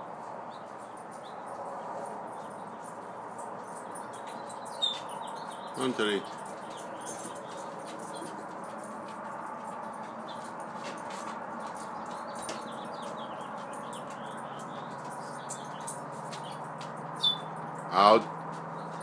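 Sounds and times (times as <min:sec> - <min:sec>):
faint high bird chirps: 0:04.2 - 0:05.9, 0:17.2 - 0:17.5.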